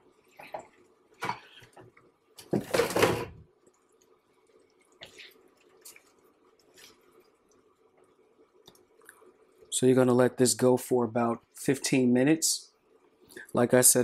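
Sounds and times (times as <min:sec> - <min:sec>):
faint steady hum: 0:00.0 - 0:14.0
spatula squelching strawberries: 0:04.9 - 0:07.6.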